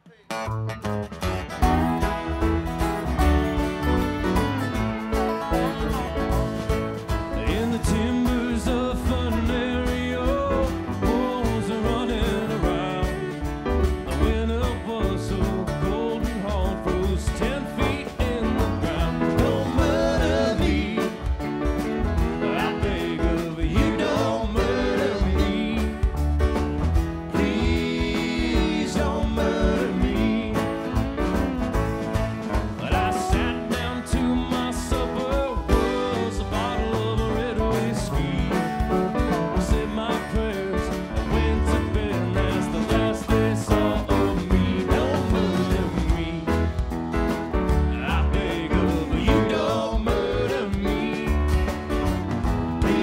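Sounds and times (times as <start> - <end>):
bass guitar: 0.0 - 53.0
drums: 0.0 - 53.0
acoustic guitars: 0.1 - 53.0
banjo: 0.2 - 53.0
fiddle: 1.3 - 7.1
man singing: 7.3 - 26.2, 27.3 - 46.9, 47.8 - 51.8, 52.8 - 53.0.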